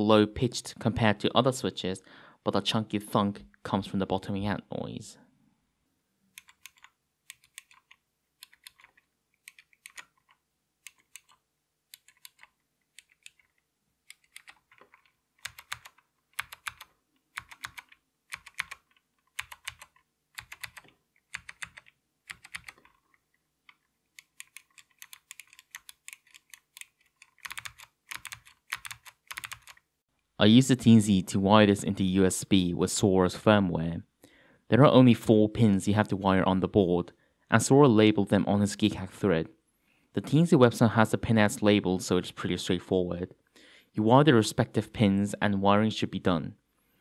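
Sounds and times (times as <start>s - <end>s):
clicky keyboard typing: 6.3s - 29.9s.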